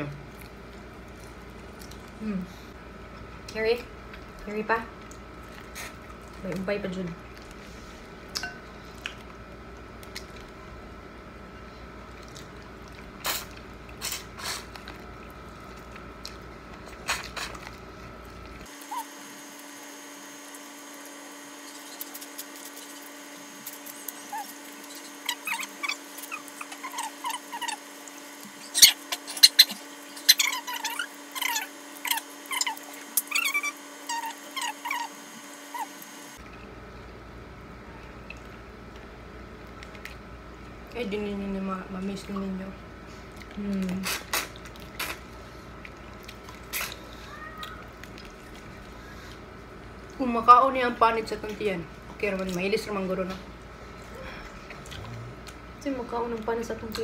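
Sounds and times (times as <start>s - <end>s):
wet sucking and lip smacking: 12.2s - 15.0s, 21.6s - 36.1s, 43.3s - 49.4s.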